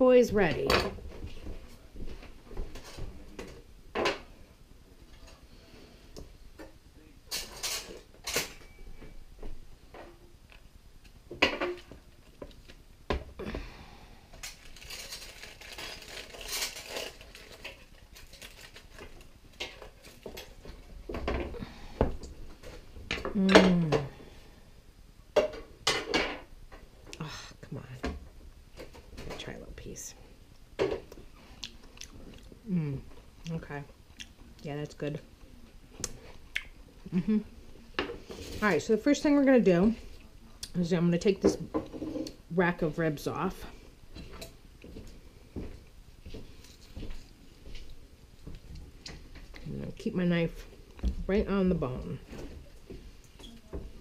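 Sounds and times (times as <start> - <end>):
aluminium foil rustling: 14.3 - 20.9.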